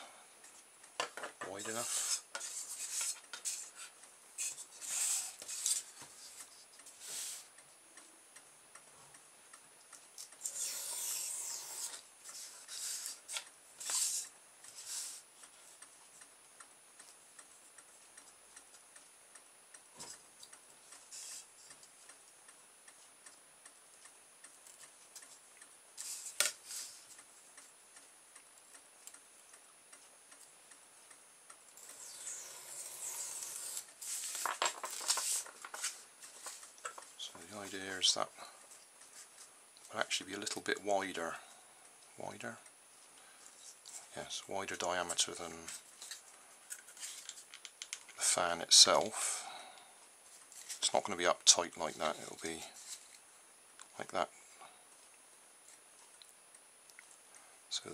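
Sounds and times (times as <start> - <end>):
knife scoring foam: 1.7 - 6.0, 10.4 - 15.2, 31.8 - 34.4.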